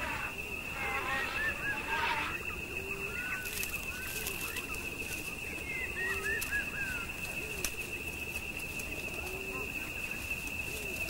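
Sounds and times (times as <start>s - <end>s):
lower bird calls: 0.0s - 7.7s
birds chirping: 0.0s - 11.0s.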